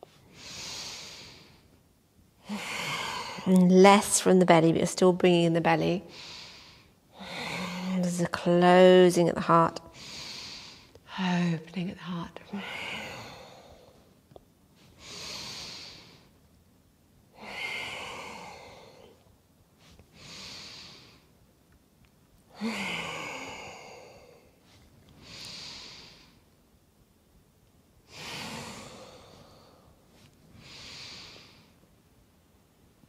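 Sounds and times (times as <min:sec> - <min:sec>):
woman breathing forcefully: 0:00.2 - 0:01.7, 0:02.4 - 0:03.5, 0:06.1 - 0:08.0, 0:09.9 - 0:10.9, 0:12.5 - 0:14.2, 0:14.9 - 0:16.3, 0:17.3 - 0:19.2, 0:20.1 - 0:21.3, 0:22.5 - 0:26.4, 0:28.1 - 0:31.8.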